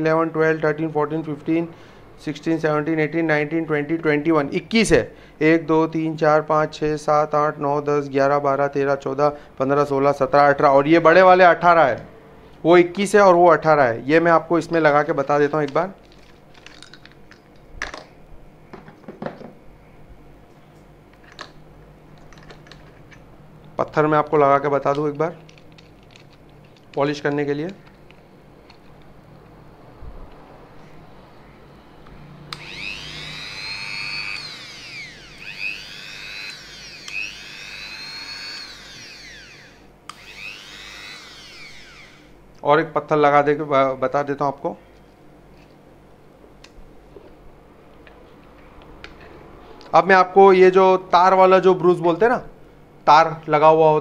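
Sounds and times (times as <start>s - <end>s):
rotary tool high-pitched whine: 32.5s - 42.4s.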